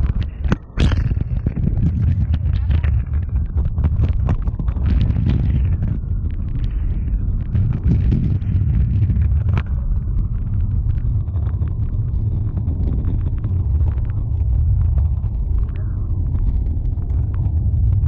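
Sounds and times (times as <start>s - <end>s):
scooter wheels rolling on asphalt: 7.8s - 18.0s.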